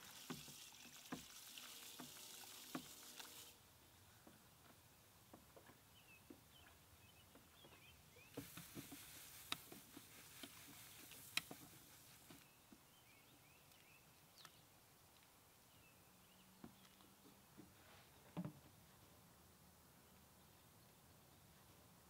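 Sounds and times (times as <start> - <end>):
malt pouring into water: 0.0 - 3.6.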